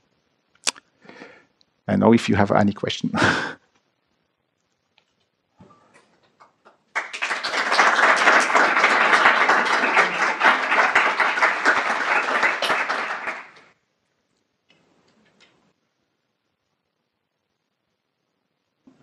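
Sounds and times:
audience applauding: 6.2s - 13.8s.

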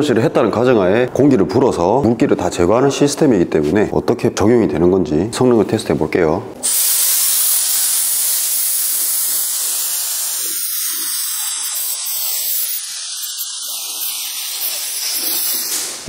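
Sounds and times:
air blow gun hissing: 6.6s - 16.0s.

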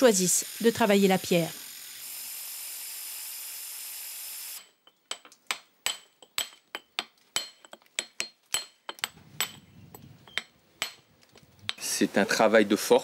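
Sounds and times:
angle grinder cutting stone: 0.0s - 4.8s
hammer striking chisel on stone: 4.8s - 11.1s.

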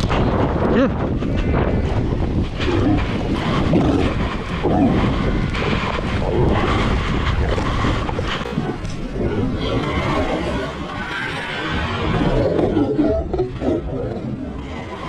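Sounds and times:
wind buffeting the microphone: 0.0s - 15.0s.

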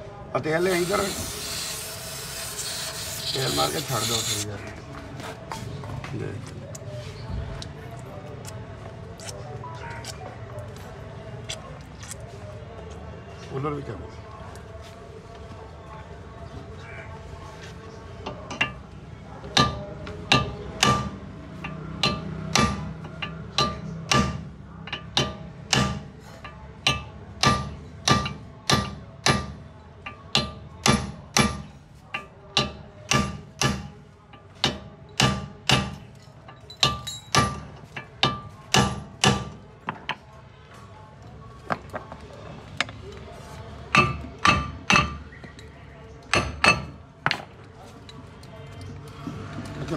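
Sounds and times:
hammer striking metal: 19.6s - 33.9s, 43.9s - 45.2s, 46.3s - 47.0s.

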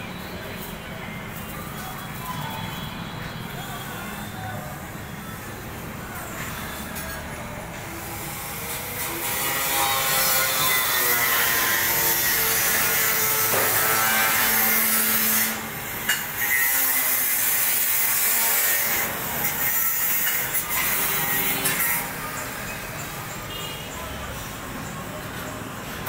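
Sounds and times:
power tool grinding metal: 8.0s - 22.6s.

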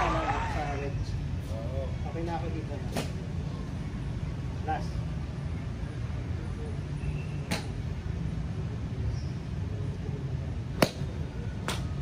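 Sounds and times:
golf club striking ball: 10.8s - 11.0s.

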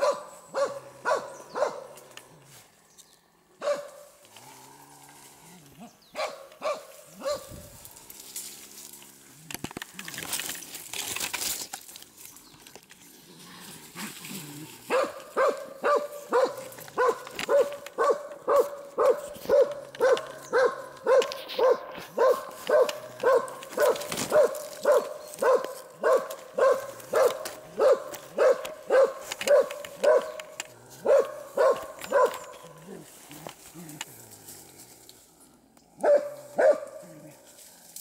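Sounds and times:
dog barking: 0.0s - 2.0s, 3.6s - 4.1s, 6.1s - 7.6s, 14.9s - 30.4s, 31.0s - 32.6s, 36.0s - 37.0s
dry leaves rustling: 0.0s - 38.0s.

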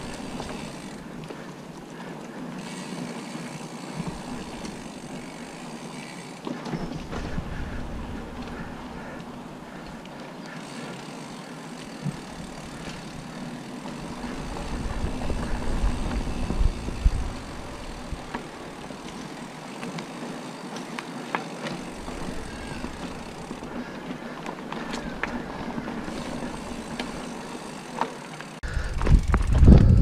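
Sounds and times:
bike rattling: 0.0s - 30.0s
bike tyres rushing on dirt: 0.0s - 30.0s.

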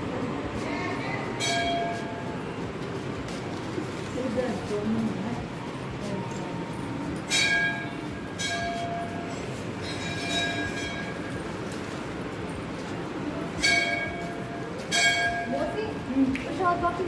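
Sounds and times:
bells ringing: 1.4s - 2.8s, 5.8s - 16.0s.

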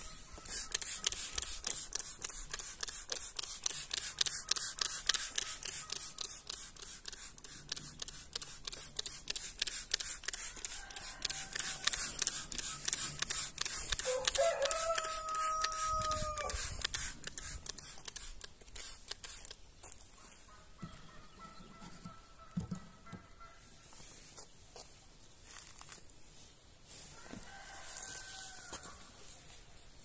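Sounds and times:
spray bottle clicking and hissing: 0.3s - 19.6s
rooster crowing: 10.6s - 12.1s, 14.0s - 16.7s, 27.1s - 29.0s.

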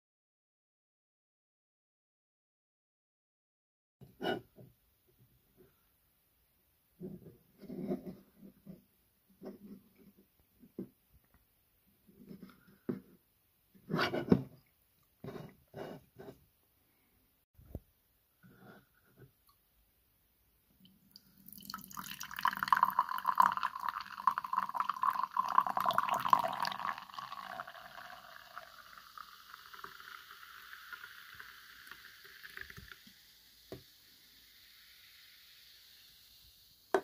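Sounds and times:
drink pouring into glass: 21.1s - 33.2s.

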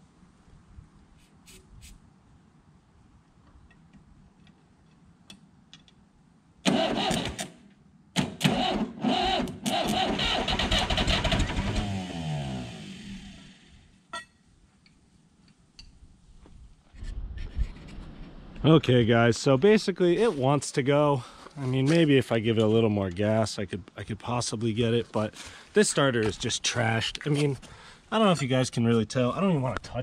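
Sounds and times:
diesel engine cranking slowly: 8.5s - 13.8s.

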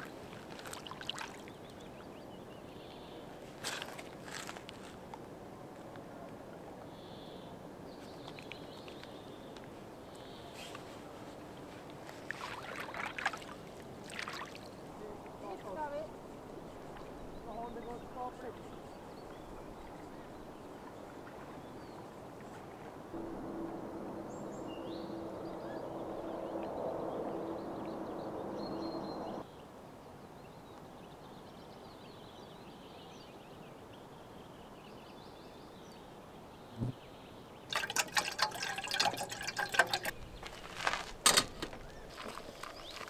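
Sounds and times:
small birds chirping: 14.2s - 21.0s, 41.7s - 43.0s
steady low hum: 23.2s - 29.4s.

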